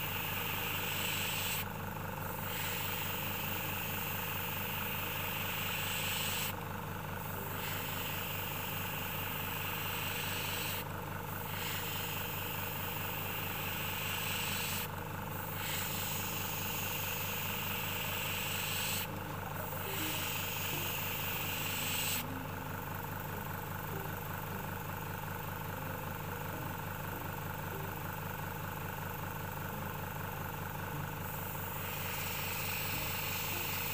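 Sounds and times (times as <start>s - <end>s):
airbrush spraying hiss: 0.0s - 6.6s, 7.2s - 22.3s, 31.3s - 33.9s
airbrush compressor running: 0.0s - 33.9s.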